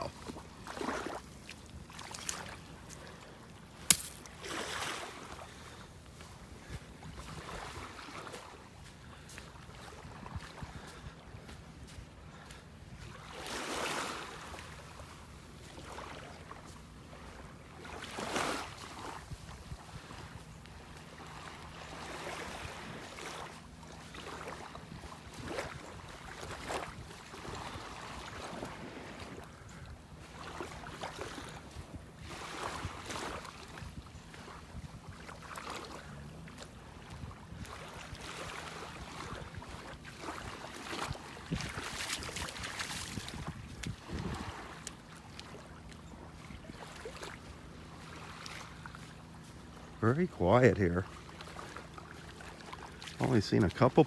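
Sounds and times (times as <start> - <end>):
small waves lapping: 0.0 - 54.0
wind on microphone: 38.9 - 44.8.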